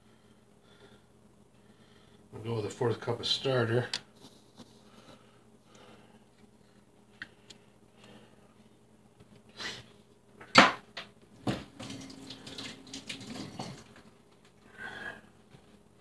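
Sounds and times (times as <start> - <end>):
dishes rustling and clattering: 11.4 - 14.1.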